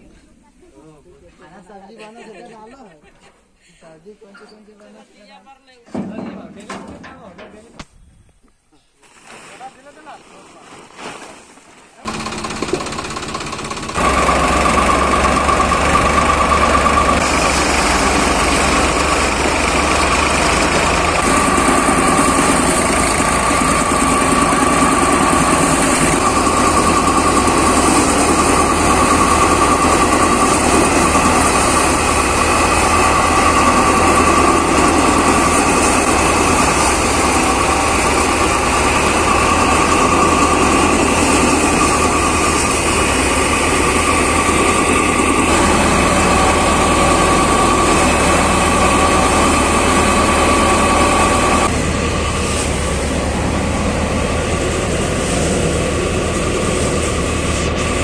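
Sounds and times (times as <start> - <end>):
threshing machine running: 12.0 - 58.0
constant machine whine: 12.1 - 58.0
tractor engine drone: 12.1 - 58.0.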